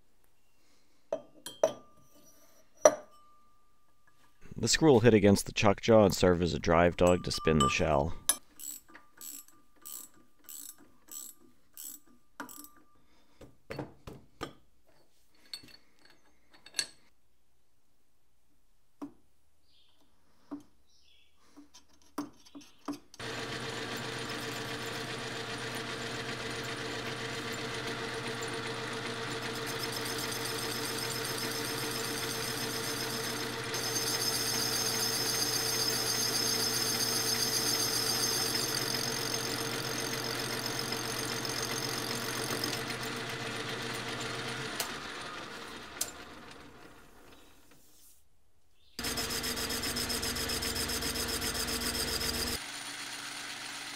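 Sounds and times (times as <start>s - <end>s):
metal lathe humming: 23.2s - 47.0s, 49.0s - 53.9s.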